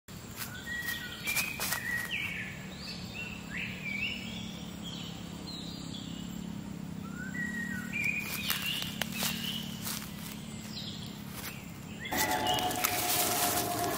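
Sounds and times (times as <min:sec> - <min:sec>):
footsteps on dry leaves: 0:00.1 - 0:02.4, 0:07.9 - 0:13.9
birds whistling upward notes: 0:07.1 - 0:13.9.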